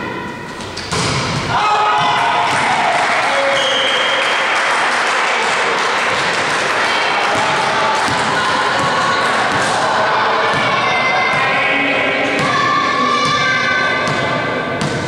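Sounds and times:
players' voices echoing: 0.0s - 15.0s.

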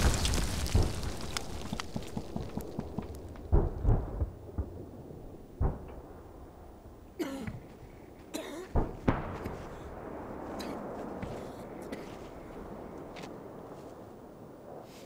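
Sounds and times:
man coughing harshly: 7.2s - 7.6s, 8.3s - 8.8s, 10.6s - 12.2s.

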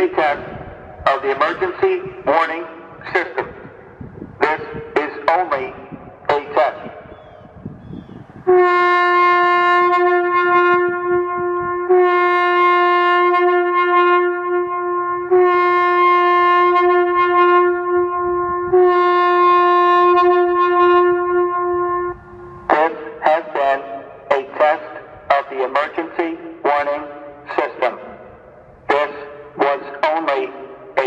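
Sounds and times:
warning siren air horn blasts: 8.4s - 31.0s.

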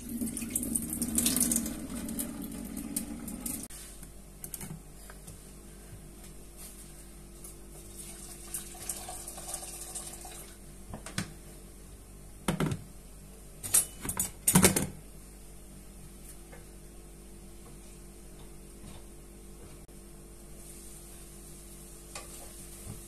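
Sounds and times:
water pouring into a pot: 0.0s - 3.7s, 7.9s - 10.6s
kitchenware clattering: 13.6s - 15.0s.

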